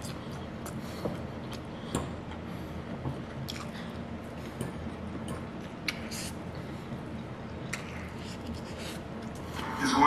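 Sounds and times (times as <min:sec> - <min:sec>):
person chewing food: 0:00.0 - 0:02.2, 0:03.1 - 0:06.4, 0:07.5 - 0:09.6
steady low hum: 0:00.0 - 0:10.0.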